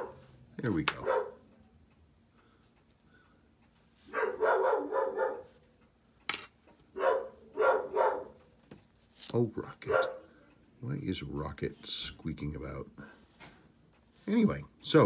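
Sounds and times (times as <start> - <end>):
dog barking: 0.0 - 0.2, 1.0 - 1.4, 4.1 - 5.6, 7.0 - 8.4, 9.9 - 10.3.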